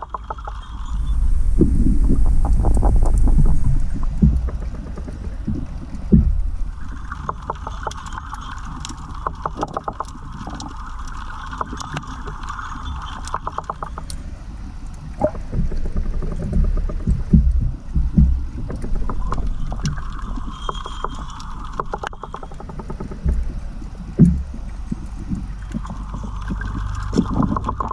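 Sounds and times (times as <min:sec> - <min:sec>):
sharp underwater clicks and crackles: 0:00.0 - 0:27.9
underwater water rumbling: 0:00.0 - 0:27.9
steady hum: 0:01.0 - 0:08.3.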